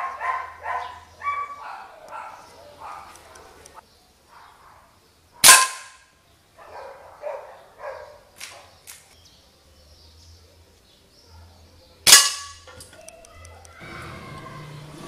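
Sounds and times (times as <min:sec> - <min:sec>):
dog barking: 0:00.0 - 0:03.6, 0:04.3 - 0:05.7, 0:06.6 - 0:08.7.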